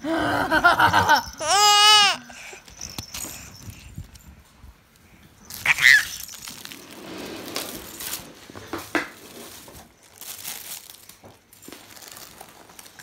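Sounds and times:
fabric tunnel crinkling: 0:05.5 - 0:13.0.

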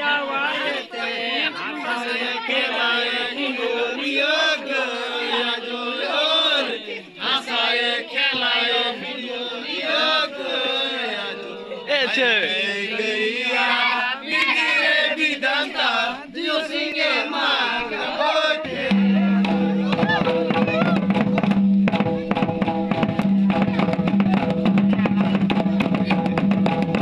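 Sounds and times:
group of voices chanting: 0:00.0 - 0:21.2.

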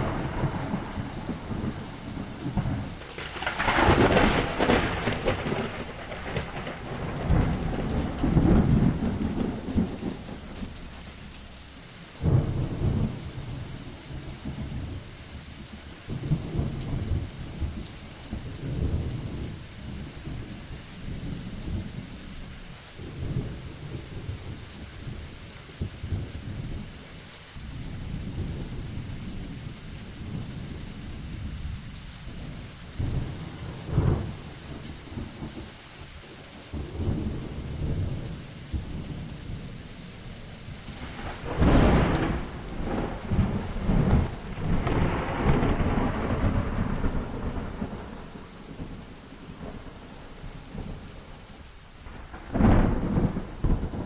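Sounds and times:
thunder clap: 0:00.0 - 0:11.5, 0:40.7 - 0:50.1, 0:52.0 - 0:54.0
thunder rolling: 0:00.0 - 0:15.0, 0:32.3 - 0:35.7, 0:40.6 - 0:51.0, 0:52.0 - 0:54.0
rain hissing: 0:00.0 - 0:54.0.

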